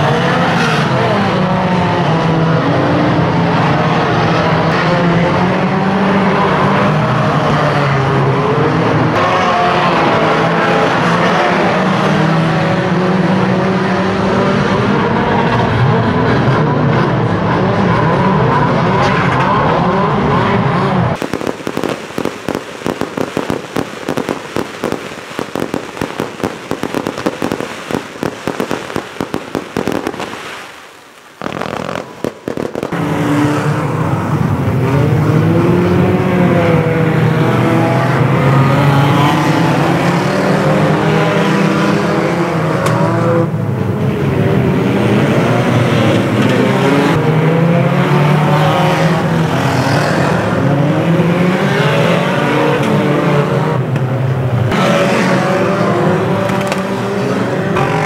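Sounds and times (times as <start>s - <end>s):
racing car engines revving: 0.0s - 58.0s
fireworks crackling: 21.2s - 33.5s, 56.6s - 56.8s.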